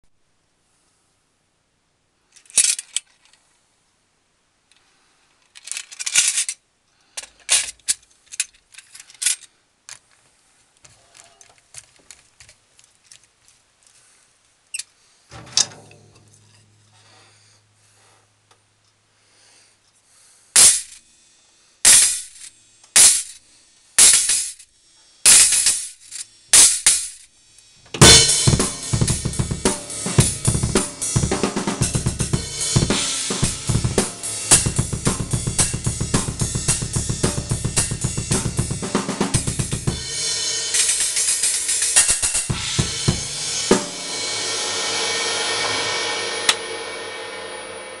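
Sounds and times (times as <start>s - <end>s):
drum kit beat: 20.6s - 21.0s, 21.9s - 23.4s, 24.0s - 24.6s, 25.3s - 48.0s
cymbal struck with drumsticks: 28.0s - 48.0s
cymbal jingling: 39.9s - 48.0s.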